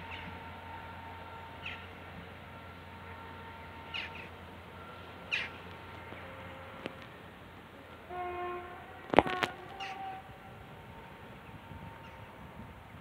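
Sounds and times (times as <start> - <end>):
downward bird calls: 5.2 - 5.6, 9.2 - 10.2.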